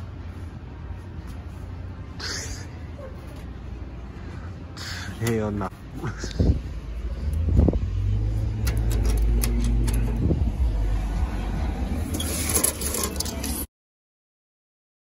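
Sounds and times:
steady low rumble: 0.0 - 12.2
keys jangling against metal mailbox: 8.5 - 10.3, 12.0 - 13.6
sharp metallic clicks: 8.5 - 10.3.

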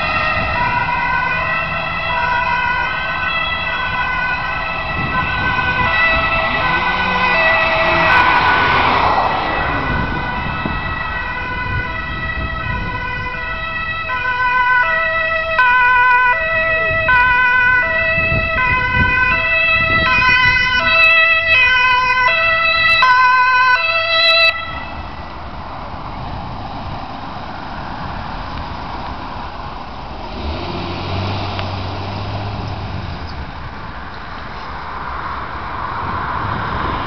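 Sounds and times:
ambulance two-tone siren: 0.0 - 25.3
vehicle engine and tyre noise: 0.0 - 37.0.

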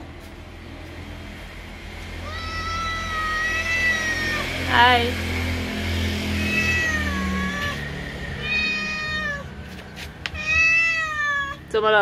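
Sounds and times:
cat meowing: 2.2 - 4.7, 6.4 - 7.8, 8.4 - 9.6, 10.3 - 11.7.

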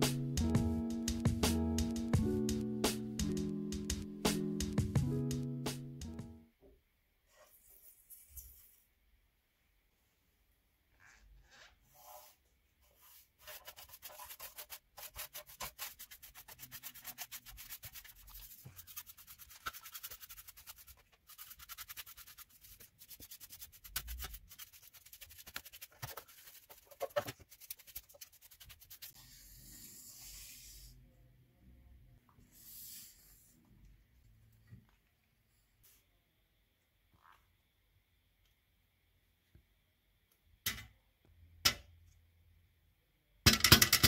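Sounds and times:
brush scrubbing metal: 13.0 - 29.2.

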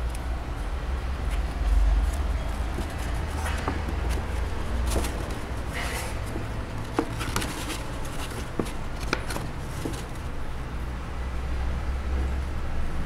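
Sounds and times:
board rustling: 1.3 - 10.4.

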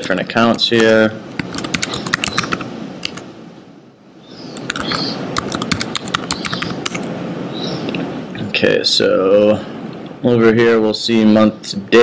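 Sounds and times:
steady hiss: 0.0 - 12.0
computer keyboard typing: 0.5 - 3.2, 4.6 - 7.1.

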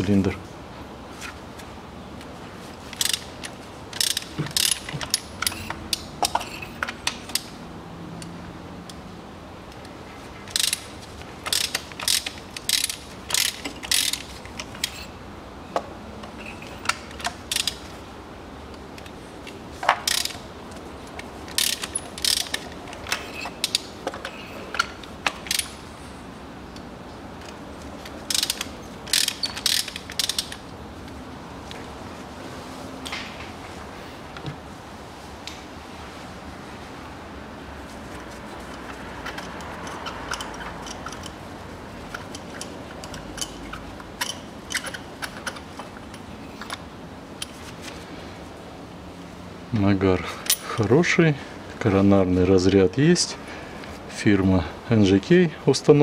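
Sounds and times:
ratchet wrench clicking: 3.0 - 7.5, 10.5 - 15.1, 16.6 - 17.8, 19.8 - 20.4, 21.5 - 25.8, 28.3 - 30.6, 38.6 - 41.4, 42.1 - 46.8.

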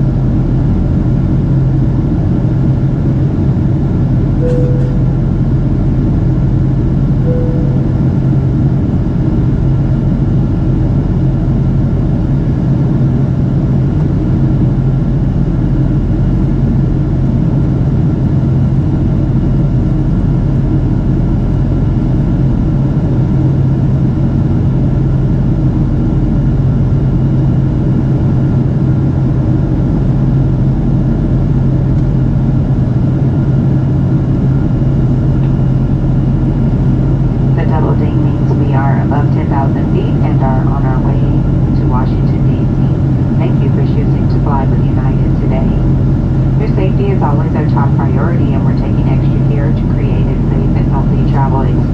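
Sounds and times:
airplane cabin rush and hum: 0.0 - 51.9
brief tone: 4.4 - 5.6, 7.2 - 8.6.

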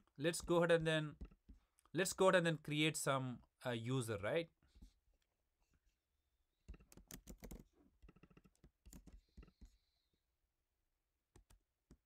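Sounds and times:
faint typing on keyboard: 0.3 - 2.0, 6.6 - 9.9, 11.3 - 12.0.

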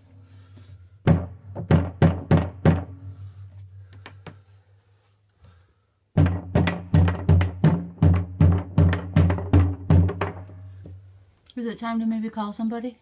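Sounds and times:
wooden mallet knocking on plastic: 1.0 - 3.1, 6.2 - 11.0.

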